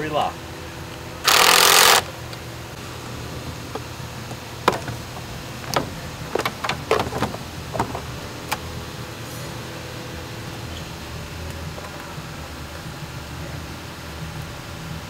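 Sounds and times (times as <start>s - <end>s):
power tool hissing burst: 1.2s - 2.1s.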